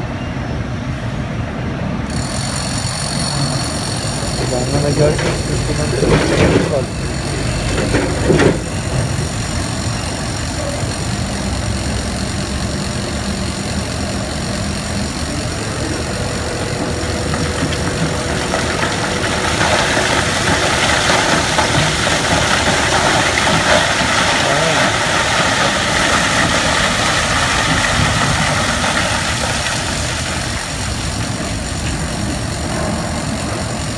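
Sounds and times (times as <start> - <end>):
heavy machinery engine rumble: 2.1 - 33.9
rock and earth pouring out: 15.6 - 33.9.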